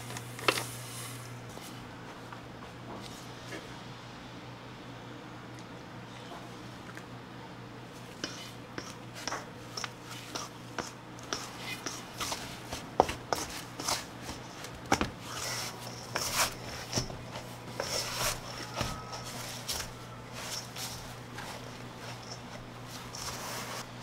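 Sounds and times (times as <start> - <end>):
dough rustling and pressing: 7.9 - 24.0.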